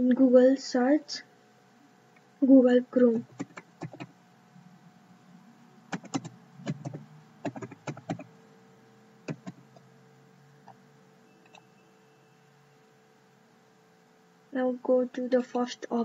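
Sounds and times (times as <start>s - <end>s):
low steady hum: 0.0s - 16.0s
keyboard typing: 3.2s - 4.1s, 5.9s - 8.3s, 9.2s - 9.9s.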